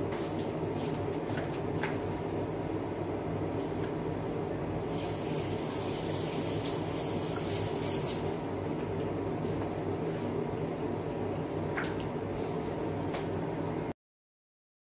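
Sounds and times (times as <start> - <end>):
range hood fan humming: 0.0 - 14.0
pot cooking with watery rush: 4.9 - 8.4.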